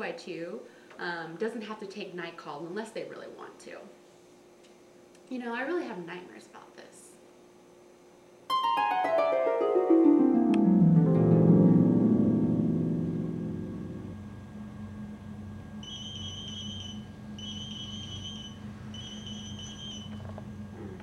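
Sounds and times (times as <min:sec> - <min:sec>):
harp music: 0:08.5 - 0:14.3
pager beeping: 0:15.8 - 0:20.1.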